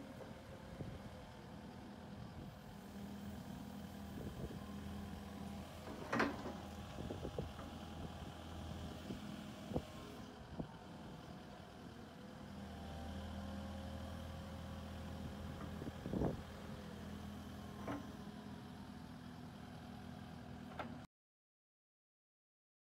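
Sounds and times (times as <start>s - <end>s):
excavator diesel engine running: 0.0s - 21.0s
excavator clunks: 5.6s - 7.8s, 17.7s - 18.3s, 20.6s - 21.0s.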